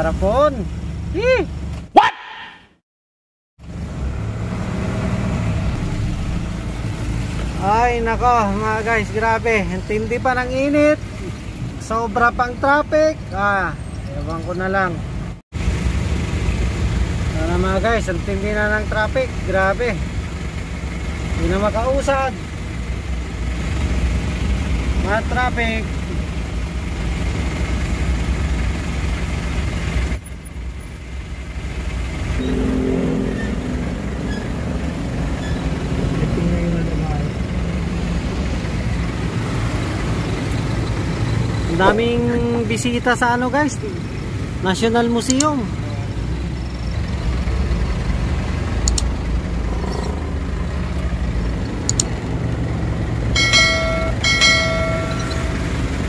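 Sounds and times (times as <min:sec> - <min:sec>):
vehicle engine rumble: 0:00.0 - 0:01.9, 0:03.6 - 0:56.0
road noise: 0:00.0 - 0:02.8, 0:03.6 - 0:56.0
vehicle horn blasts: 0:32.4 - 0:34.6
low droning note: 0:32.4 - 0:35.4.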